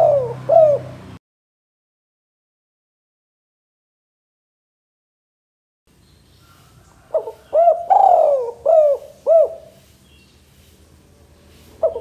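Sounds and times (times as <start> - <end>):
dove cooing: 0.0 - 1.0, 6.5 - 9.8, 11.8 - 12.0.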